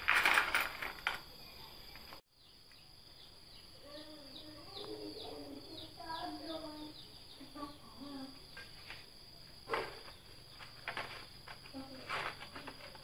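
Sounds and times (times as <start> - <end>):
metal parts clinking: 0.0 - 1.3
insect chirring: 0.0 - 13.0.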